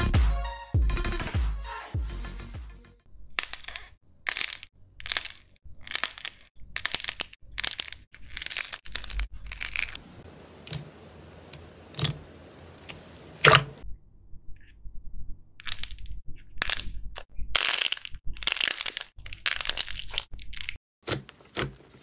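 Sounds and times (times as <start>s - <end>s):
slime squishing: 11.5s - 13.8s.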